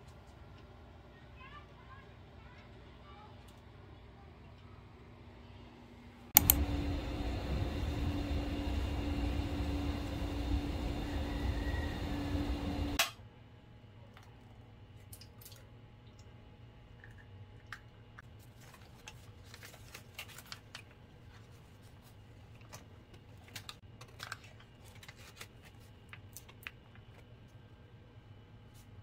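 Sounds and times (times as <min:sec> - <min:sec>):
loud steady hum: 0:06.4 - 0:13.1.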